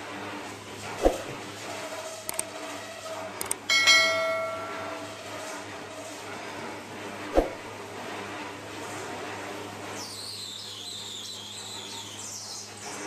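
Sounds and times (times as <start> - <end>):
lathe humming: 3.6 - 7.2.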